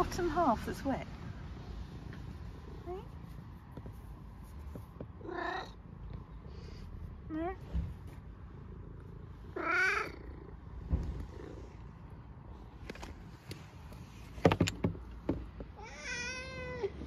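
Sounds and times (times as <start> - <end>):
cat meowing: 5.2 - 5.8, 9.5 - 10.4, 15.8 - 17.0
sharp clicks and knocks: 14.3 - 15.8.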